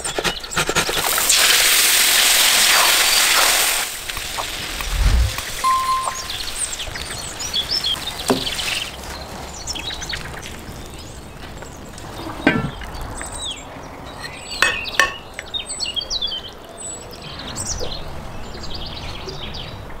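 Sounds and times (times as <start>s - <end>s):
small birds chirping: 0.0s - 19.9s
cookware clinking: 14.2s - 15.3s.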